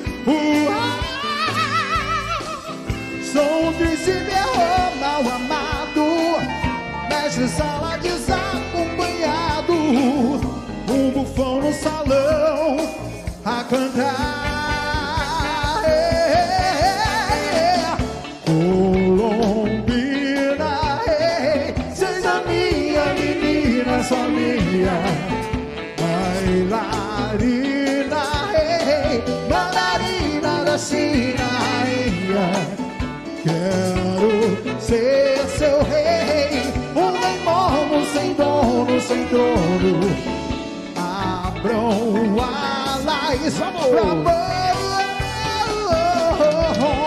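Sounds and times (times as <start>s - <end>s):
voices singing with vibrato: 0.0s - 19.6s, 20.3s - 34.6s
big band playing: 0.0s - 47.0s.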